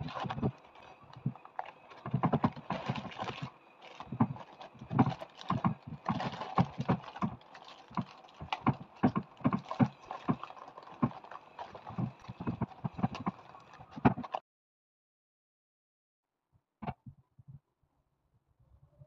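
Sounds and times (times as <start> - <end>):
plastic packet crinkling: 0.0 - 14.4.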